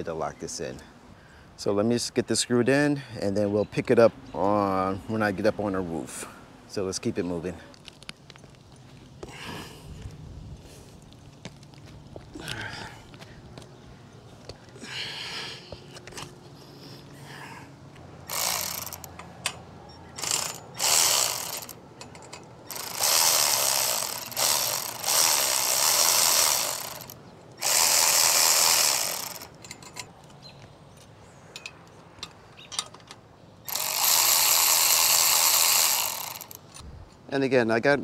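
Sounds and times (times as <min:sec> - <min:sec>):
ratchet wrench ratcheting: 0:18.2 - 0:19.6, 0:20.2 - 0:30.1, 0:33.7 - 0:36.8.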